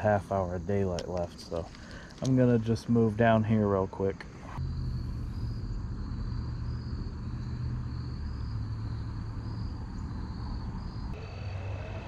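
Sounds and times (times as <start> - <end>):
insects trilling: 0.0 - 11.7
low rumble: 4.3 - 11.2.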